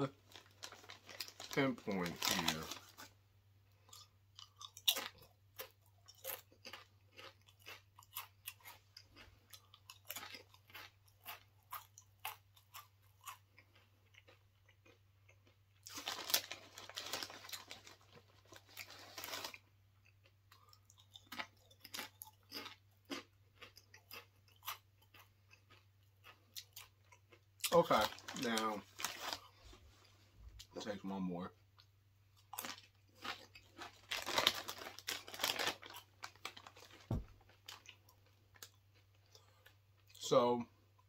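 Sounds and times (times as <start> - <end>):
crunching and chewing chip: 0.0 - 29.8, 31.8 - 40.3
chip bag rustling: 0.1 - 3.1, 15.9 - 19.6, 27.8 - 29.7, 32.6 - 38.0.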